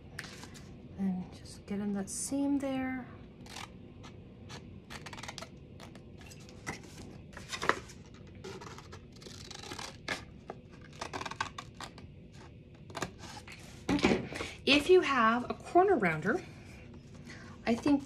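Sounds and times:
paper rustling: 6.2 - 10.2.

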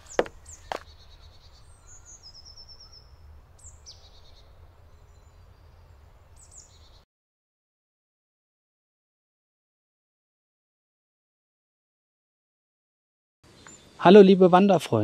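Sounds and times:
songbirds calling: 0.0 - 7.0, 13.4 - 15.0.

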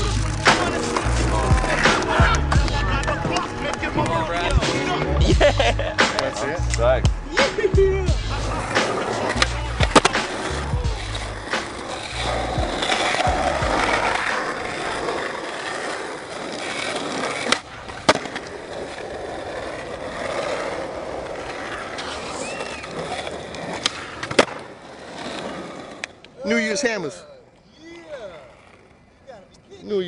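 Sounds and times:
skateboard tail clacks: 0.0 - 5.1, 6.0 - 6.8, 8.4 - 26.4
hip-hop beat: 0.0 - 14.7
skateboard wheels rolling on asphalt: 0.0 - 30.0.

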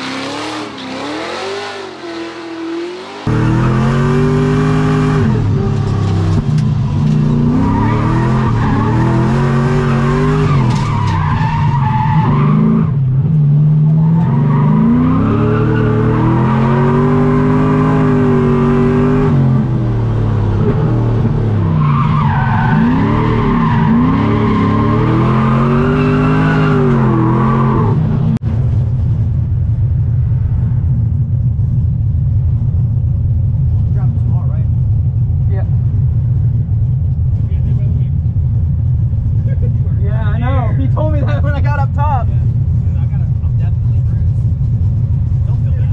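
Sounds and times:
car engine revving: 0.0 - 28.9.

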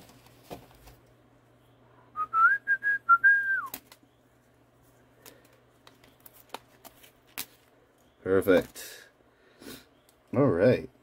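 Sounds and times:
person whistling: 2.1 - 3.8.

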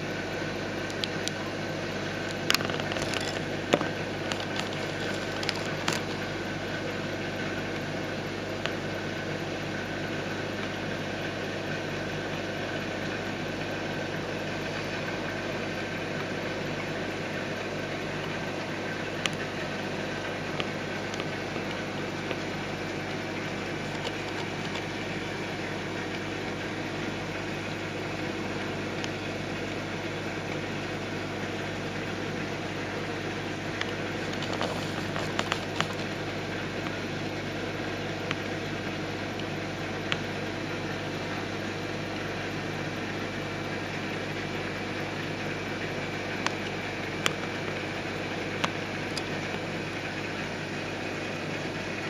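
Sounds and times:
aquarium steady hum: 0.0 - 52.0
water rushing and bubbling: 0.8 - 7.9, 16.2 - 26.7.

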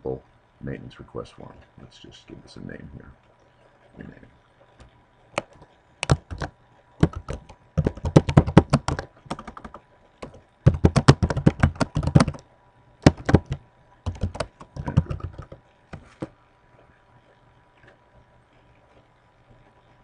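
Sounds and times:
typing on computer keyboard: 5.4 - 12.4, 13.0 - 15.6.

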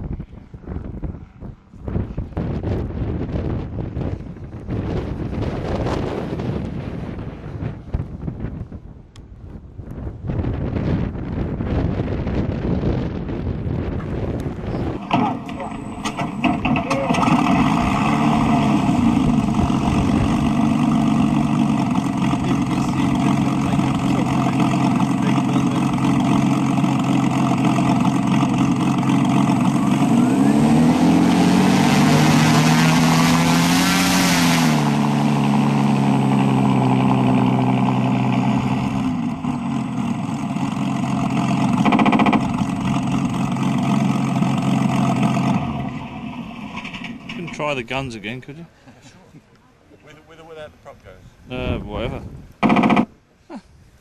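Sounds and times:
engine sound from a speaker: 11.2 - 47.8, 51.5 - 53.2.

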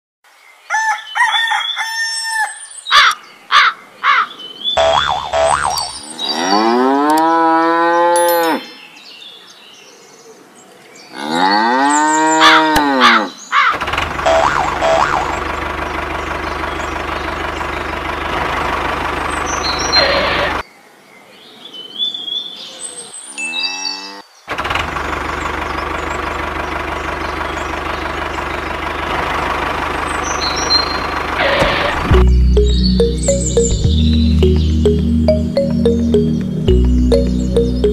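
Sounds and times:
engine running: 4.8 - 6.0, 13.8 - 20.6, 24.5 - 37.9
short high chirps: 4.8 - 6.0, 32.1 - 37.9
cow mooing: 5.0 - 8.6.

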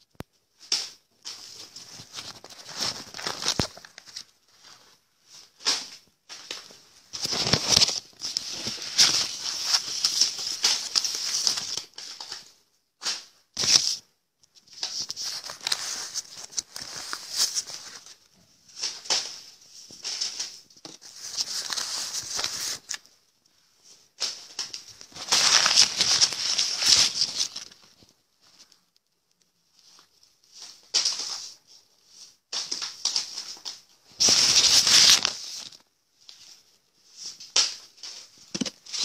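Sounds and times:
paper banknotes rustling: 1.3 - 4.8, 6.4 - 12.4, 14.8 - 18.2, 20.0 - 23.1, 24.3 - 28.0, 34.2 - 35.8.

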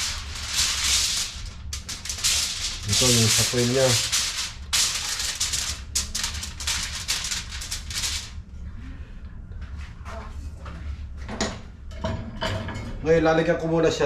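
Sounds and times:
aluminium foil crinkling: 0.0 - 8.4.

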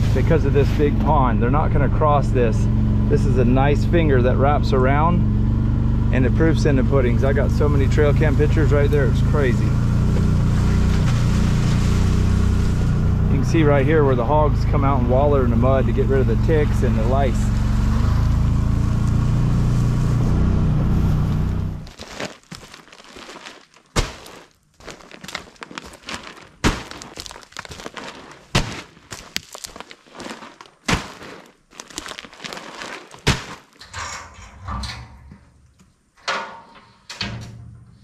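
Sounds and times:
utility vehicle engine running: 0.0 - 21.9
rustling: 8.3 - 13.2, 16.5 - 36.0
sharp knocks and thunks: 28.5 - 29.0, 33.2 - 35.6.

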